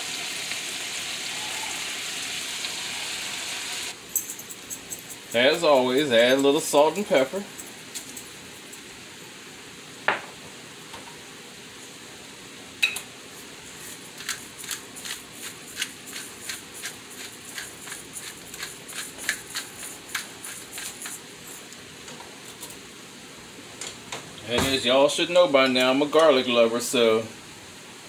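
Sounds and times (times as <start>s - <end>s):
pepper grinder grinding: 4.0s - 8.8s, 13.8s - 21.8s.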